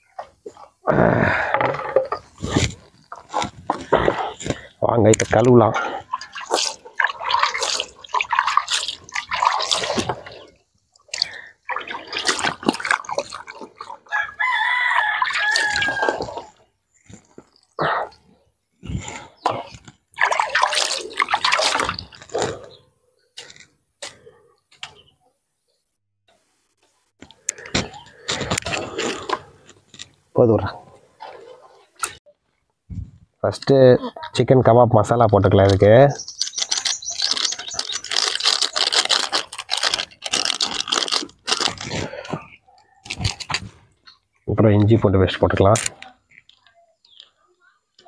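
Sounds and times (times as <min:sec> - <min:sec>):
water splashing and pouring: 0:01.3 - 0:16.6, 0:19.5 - 0:22.6, 0:36.6 - 0:42.3
spice packet crinkling: 0:36.2 - 0:42.1.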